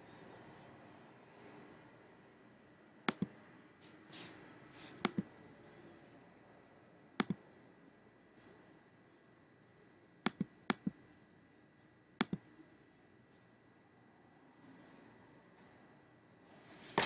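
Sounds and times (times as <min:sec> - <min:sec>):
computer mouse button clicking: 0:03.1 - 0:03.3, 0:05.0 - 0:05.3, 0:07.2 - 0:07.4, 0:10.3 - 0:11.0, 0:12.2 - 0:12.4.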